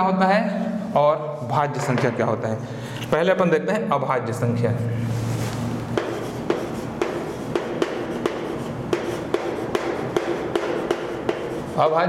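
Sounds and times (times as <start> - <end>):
chalk scratching on chalkboard: 5.9 - 12.0
chalk tapping: 5.9 - 12.0.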